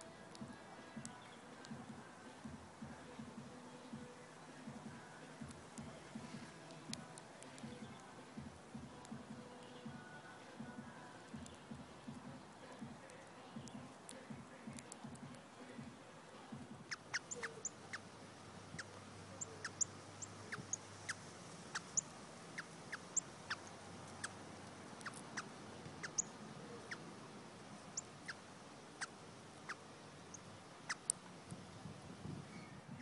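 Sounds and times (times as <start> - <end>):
cardinal chip calls: 16.9 - 27.1, 27.8 - 31.2.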